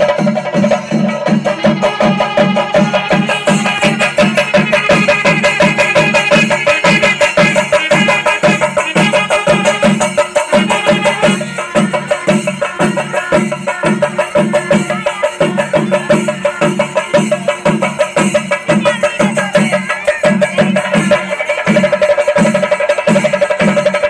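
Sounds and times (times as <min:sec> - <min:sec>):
drum ensemble playing fast rhythm: 0:00.0 - 0:24.0.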